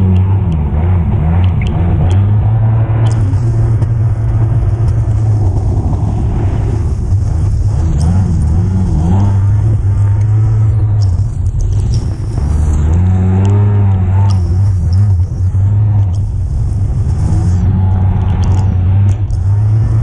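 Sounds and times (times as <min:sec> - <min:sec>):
jet ski engine running hard: 0:03.0 - 0:18.6.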